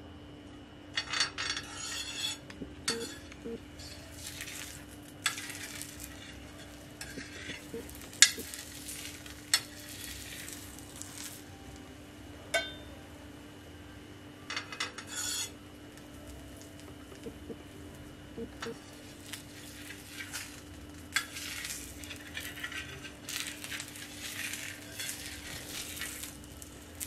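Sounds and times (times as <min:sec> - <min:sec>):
flatbread sizzling in oil: 0:01.7 - 0:11.5, 0:15.0 - 0:17.3, 0:18.8 - 0:27.0
metal spoon clinking on pan: 0:12.6 - 0:12.9.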